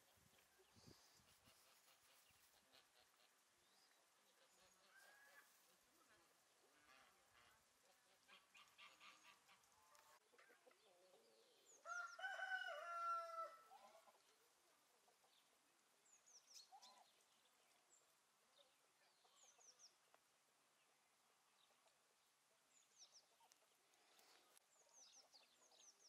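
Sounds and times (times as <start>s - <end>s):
rooster crowing: 11.8s - 13.7s.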